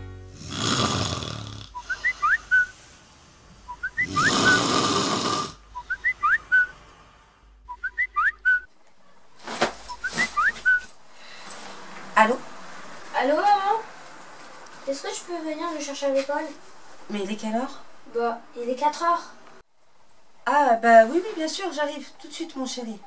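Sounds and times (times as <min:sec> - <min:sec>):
person snoring: 0:00.4 - 0:02.2, 0:04.0 - 0:05.6
whistled snore chirps: 0:00.4 - 0:02.8, 0:03.7 - 0:06.8, 0:07.7 - 0:08.7.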